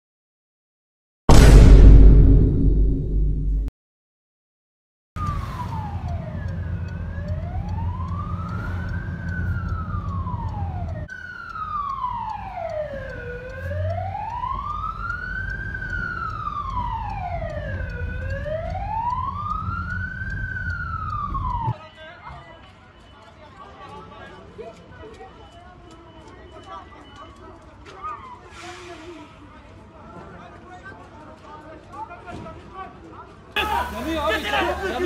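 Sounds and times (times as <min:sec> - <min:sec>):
engine and road rumble: 0:05.2 - 0:21.8
fire engine siren wailing: 0:05.2 - 0:21.8, 0:33.6 - 0:35.0.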